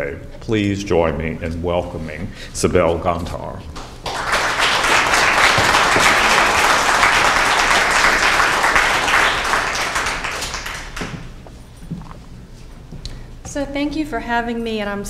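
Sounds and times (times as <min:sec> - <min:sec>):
audience applauding: 0:03.8 - 0:11.4.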